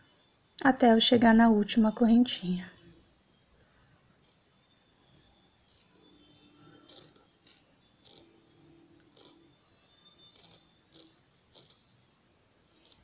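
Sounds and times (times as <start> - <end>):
crochet hook ticks and rustles: 4.0 - 4.8, 5.7 - 6.0, 6.8 - 8.3, 9.0 - 9.4, 10.3 - 11.8, 12.7 - 13.0.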